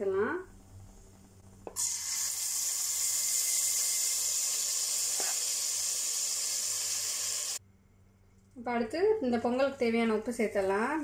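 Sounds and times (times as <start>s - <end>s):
rice and lentils sizzling in ghee: 1.8s - 7.6s.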